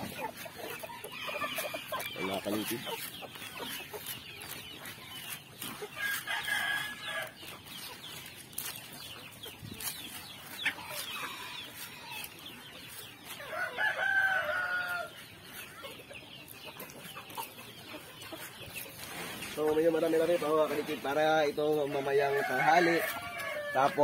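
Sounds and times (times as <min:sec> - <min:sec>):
chickens clucking: 0:00.0 - 0:24.0
rooster crowing: 0:13.5 - 0:15.1, 0:22.2 - 0:24.0.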